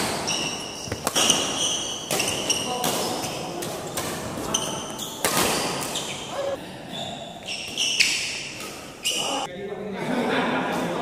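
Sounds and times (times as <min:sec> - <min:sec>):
rackets hitting shuttlecock: 0:00.0 - 0:06.2
shoes squeaking on court floor: 0:00.0 - 0:09.5.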